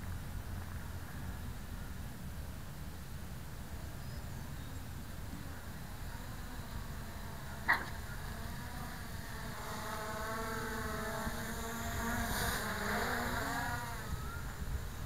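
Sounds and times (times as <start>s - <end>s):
quadcopter propellers buzzing: 5.3s - 15.0s
wind rumble on microphone: 10.8s - 15.0s.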